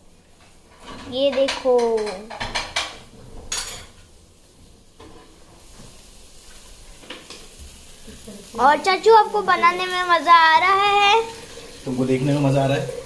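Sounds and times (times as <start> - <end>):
faint pan sizzle: 0.0 - 13.0
utensils clinking on dishes: 0.8 - 4.0.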